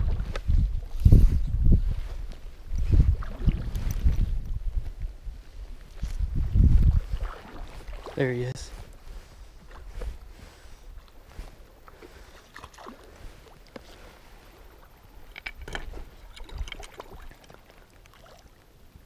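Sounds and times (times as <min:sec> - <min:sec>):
fishing gear clicks and rustles: 0:02.2 - 0:04.4, 0:15.0 - 0:18.0
stream running over stones: 0:06.0 - 0:09.0, 0:11.1 - 0:19.0.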